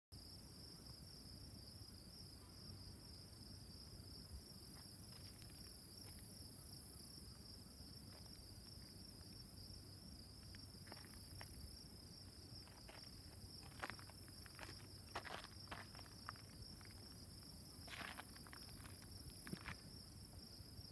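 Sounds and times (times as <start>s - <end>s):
crickets trilling: 0.2s - 20.9s.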